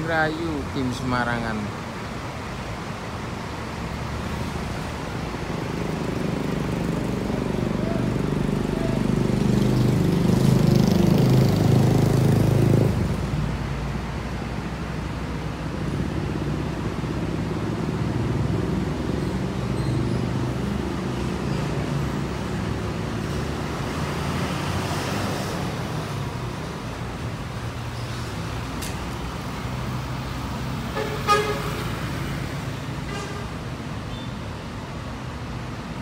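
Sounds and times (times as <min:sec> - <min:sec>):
traffic noise: 0:00.0 - 0:36.0
bus engine pulling away: 0:03.4 - 0:36.0
vehicle horn toot: 0:31.0 - 0:31.9.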